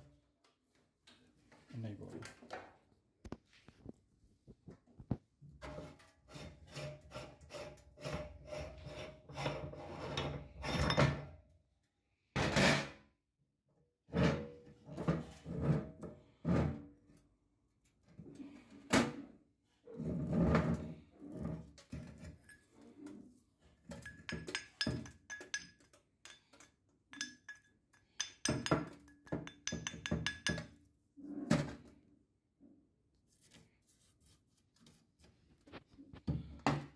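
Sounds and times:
metal grinder parts clinking: 23.9 - 26.6.

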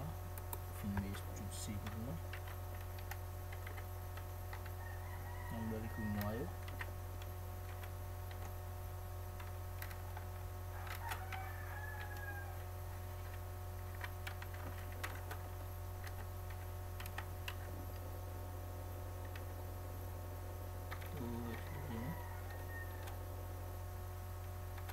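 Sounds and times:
steady low hum: 0.0 - 24.9
keyboard typing clicks: 1.8 - 4.8, 16.0 - 18.0
faint drawn-out pitched call: 21.1 - 23.2.

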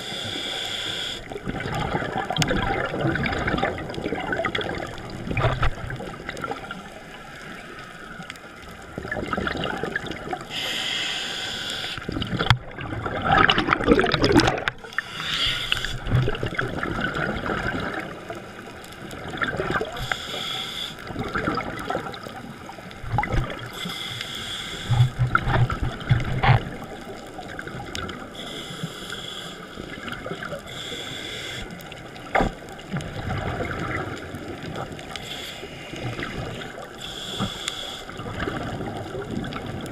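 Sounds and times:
hissing regulator inhalation: 0.0 - 1.3, 10.5 - 12.1, 14.9 - 16.1, 20.0 - 21.1, 23.7 - 25.0, 28.4 - 29.8, 30.6 - 31.8, 35.2 - 36.2, 37.0 - 38.2
bubbling exhalation: 12.1 - 18.1.

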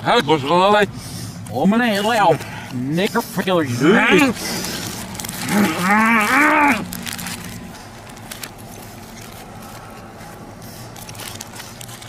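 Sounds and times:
car engine idling: 0.0 - 12.0
paper wrapper crackling: 1.4 - 12.0
man's wavering cry: 3.7 - 4.4.

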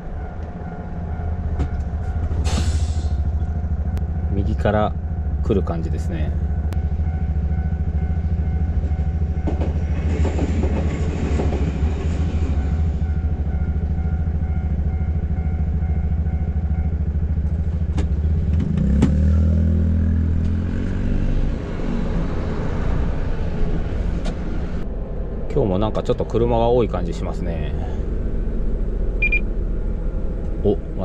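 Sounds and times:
truck diesel engine: 0.0 - 31.0
train wheels clattering: 8.8 - 13.0.

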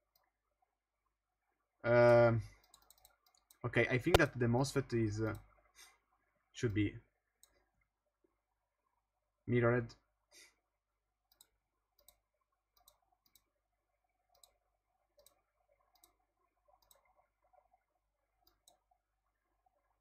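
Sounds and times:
faint computer mouse clicks: 2.1 - 4.3, 11.3 - 12.2, 12.8 - 13.5, 14.3 - 14.6, 15.2 - 16.2, 16.8 - 17.1.

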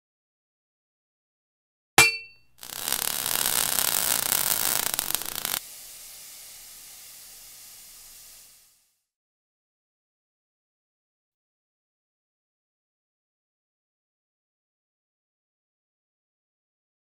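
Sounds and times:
sharp metallic clang: 2.0 - 2.5
faint hiss: 2.6 - 9.2
hiss of sparks: 2.6 - 9.2.

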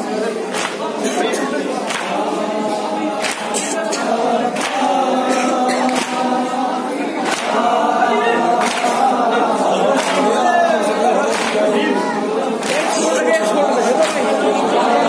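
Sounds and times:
men chanting in unison: 0.0 - 15.0
hands slapping chests: 0.5 - 1.0, 1.8 - 2.4, 3.2 - 6.5, 7.2 - 7.8, 8.6 - 9.2, 9.9 - 10.4, 11.2 - 11.8.

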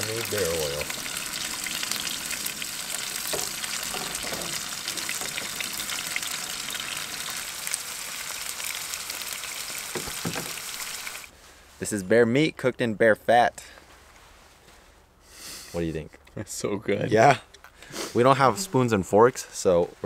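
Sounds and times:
meat sizzling in a pan: 0.0 - 11.3.

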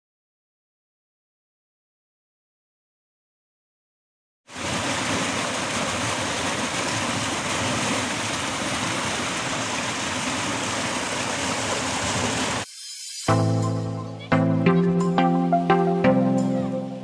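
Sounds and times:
turbulent water rushing: 4.5 - 12.7.

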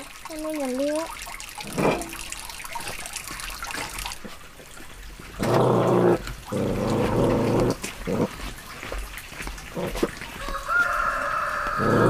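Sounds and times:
puppy growling: 5.4 - 8.5, 9.7 - 10.1, 11.8 - 12.0.

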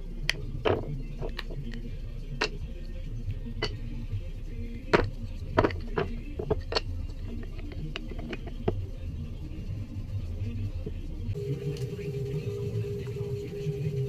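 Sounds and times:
background music with bass: 0.0 - 14.0
wooden scales clicking and knocking: 4.9 - 8.8.

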